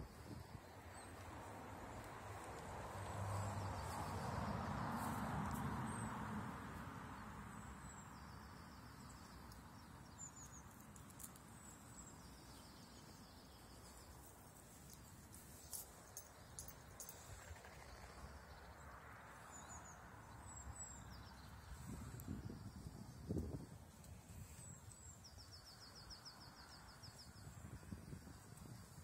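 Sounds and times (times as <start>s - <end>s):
small birds chirping: 7.2s - 29.0s.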